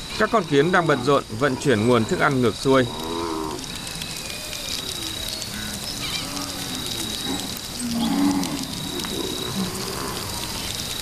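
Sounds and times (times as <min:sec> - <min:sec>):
cattle lowing: 0:04.9 - 0:10.8.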